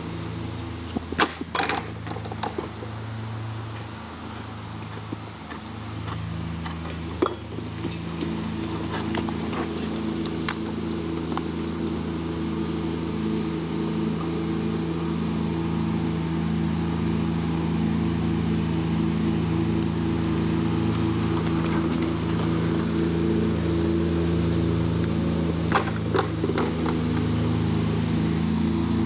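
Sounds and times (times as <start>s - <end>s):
motor engine humming: 0.0s - 29.0s.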